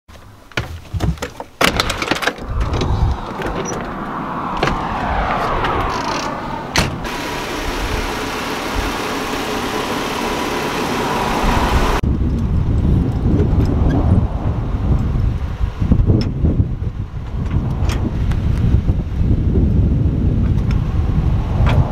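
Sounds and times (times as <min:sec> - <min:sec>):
wind rumble on microphone: 0:01.8 - 0:09.1, 0:11.2 - 0:21.9
vehicle passing on road: 0:02.4 - 0:12.0.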